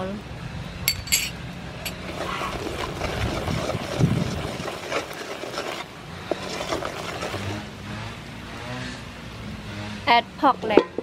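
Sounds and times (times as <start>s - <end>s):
spoon scraping in metal pot: 0.9s - 3.9s
caramel bubbling: 1.6s - 7.9s.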